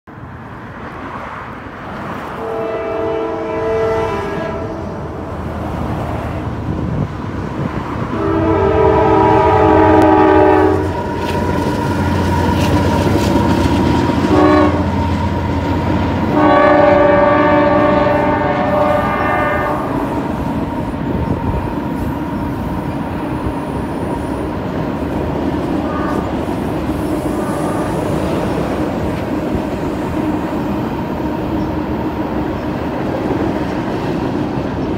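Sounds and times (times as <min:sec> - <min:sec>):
diesel locomotive rumble: 0:00.1 - 0:34.9
train cars rolling: 0:00.7 - 0:34.9
train horn blasts: 0:02.4 - 0:05.4, 0:08.1 - 0:11.4, 0:14.1 - 0:15.3, 0:16.2 - 0:22.5, 0:25.7 - 0:28.8.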